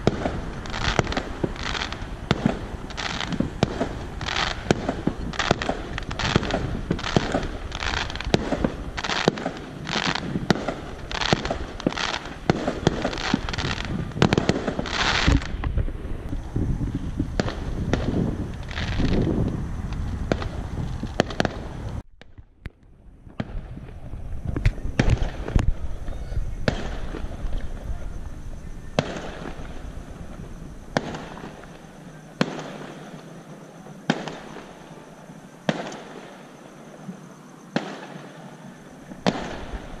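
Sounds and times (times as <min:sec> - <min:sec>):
distant fireworks bangs: 0:00.0 - 0:40.0.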